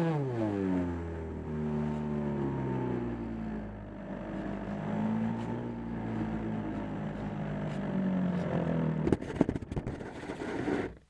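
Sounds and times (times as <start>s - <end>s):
model airplane motor and propeller: 0.0s - 11.0s
plane bumping across snow: 4.4s - 11.0s.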